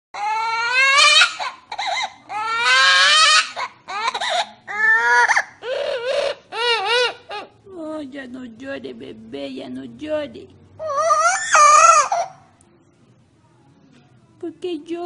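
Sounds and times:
parrot imitating crying baby: 0.2s - 7.6s, 10.8s - 12.5s.

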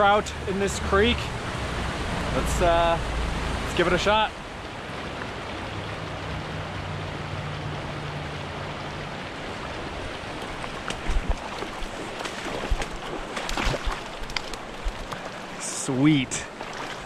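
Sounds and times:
road traffic hum: 0.0s - 13.4s
creek running over rocks: 0.0s - 17.0s
fish splashing at surface: 10.6s - 15.3s.

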